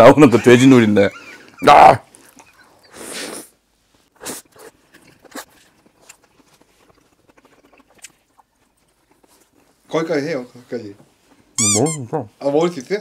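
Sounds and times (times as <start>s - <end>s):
person chewing: 2.1s - 3.5s, 4.2s - 9.9s.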